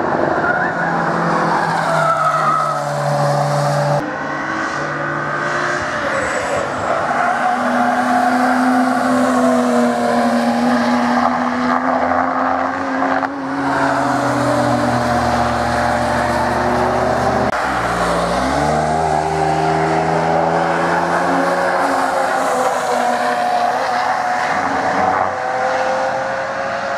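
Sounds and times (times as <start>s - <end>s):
race car engines at high revs: 7.5s - 26.9s.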